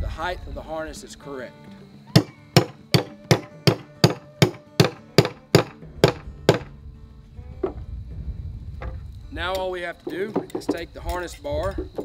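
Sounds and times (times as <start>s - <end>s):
hammer tapping a rod: 2.2s - 6.7s.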